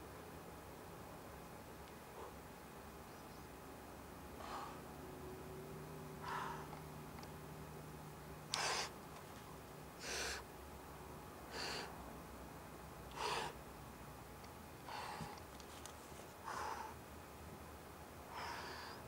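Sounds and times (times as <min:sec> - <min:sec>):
person breathing hard: 0:04.4 - 0:04.9, 0:06.2 - 0:06.8, 0:08.5 - 0:09.0, 0:10.0 - 0:10.5, 0:11.5 - 0:12.0, 0:13.1 - 0:13.6, 0:14.8 - 0:15.5, 0:16.4 - 0:17.0, 0:18.3 - 0:19.0.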